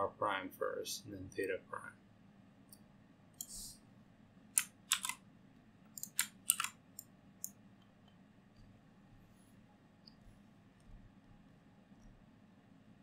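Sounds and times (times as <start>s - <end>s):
mouse and keyboard clicks: 4.6s - 5.2s, 5.9s - 8.2s.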